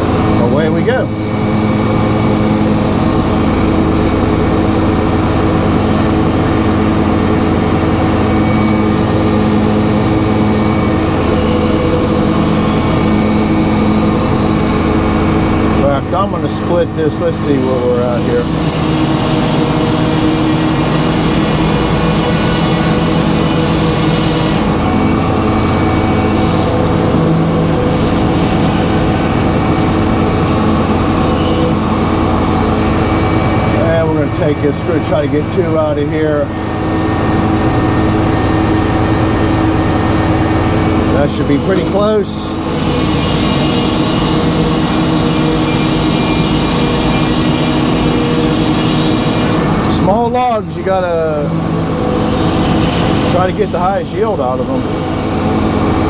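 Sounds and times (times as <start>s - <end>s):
sawmill machine drone: 0.0s - 56.0s.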